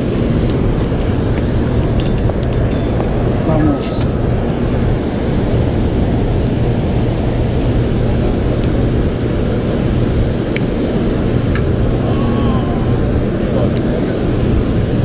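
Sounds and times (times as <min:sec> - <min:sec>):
water roaring through dam spillway: 0:00.0 - 0:15.0.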